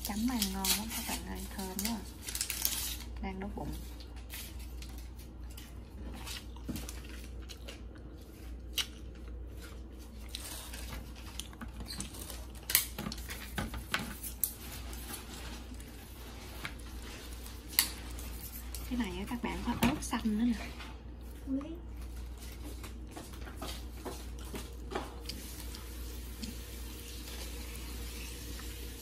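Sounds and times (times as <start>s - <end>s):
low steady hum: 0.0s - 29.0s
crunching of fried food: 3.9s - 13.6s.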